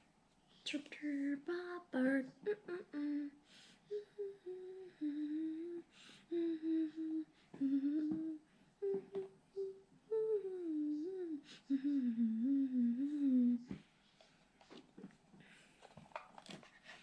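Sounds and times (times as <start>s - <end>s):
girl humming a tune: 0.6s - 13.8s.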